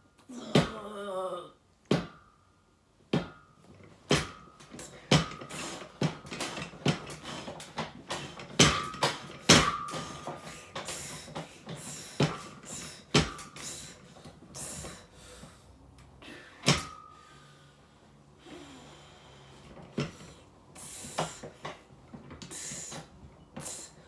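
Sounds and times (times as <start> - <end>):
exercise equipment metal knocks: 1.9 - 2.4, 3.1 - 11.5.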